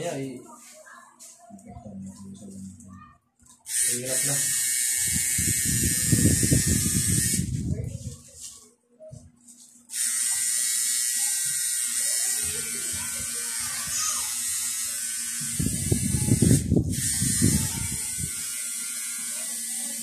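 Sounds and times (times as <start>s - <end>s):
tattoo machine buzzing: 3.7s - 7.7s, 9.9s - 20.0s.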